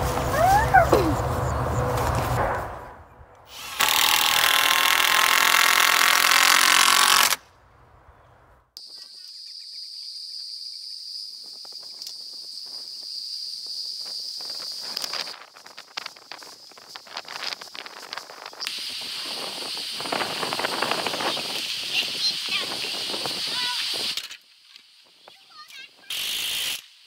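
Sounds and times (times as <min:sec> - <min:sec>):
cordless drill motor whine: 0:03.5 - 0:07.4.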